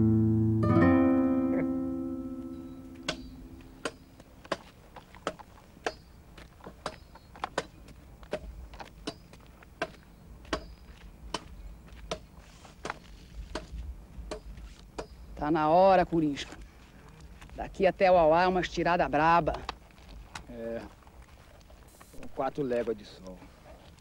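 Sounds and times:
plucked guitar chord: 0:00.0 - 0:04.0
low wind rumble: 0:13.3 - 0:14.6.

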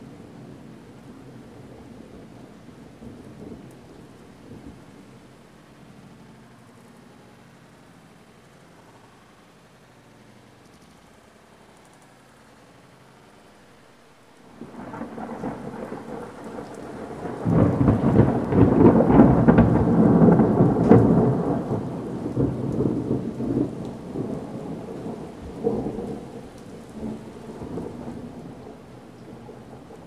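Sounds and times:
steady rain: 0:00.0 - 0:30.0
rolling thunder: 0:14.5 - 0:30.0.

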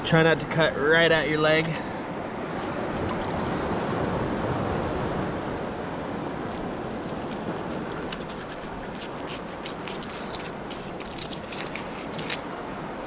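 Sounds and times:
waves washing on shore: 0:00.8 - 0:13.0
knife scraping fish scales: 0:07.1 - 0:12.4.

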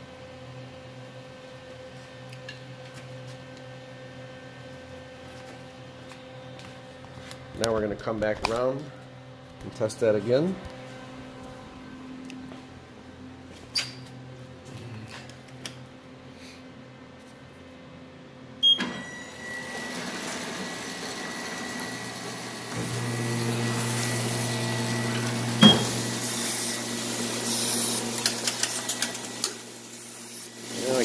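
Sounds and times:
printing press running: 0:19.6 - 0:31.0.

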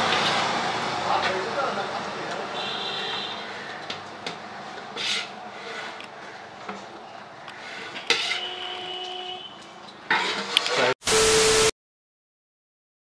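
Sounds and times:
spoon scraping rice in pot: 0:05.0 - 0:06.0, 0:07.6 - 0:08.5.

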